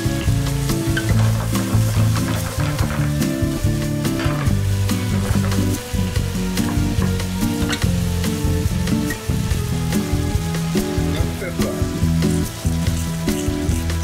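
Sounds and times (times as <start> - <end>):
background music: 0.0 - 14.0
food sizzling in frying pan: 0.0 - 14.0
spatula scraping pan: 0.2 - 6.0.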